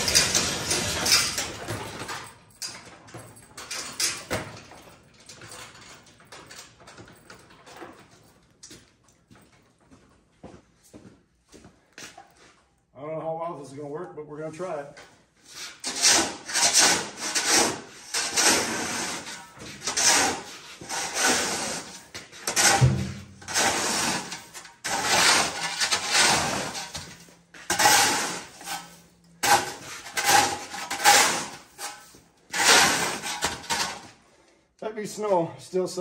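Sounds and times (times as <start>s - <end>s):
metal shovel scraping concrete: 0.0s - 2.3s, 15.5s - 34.2s.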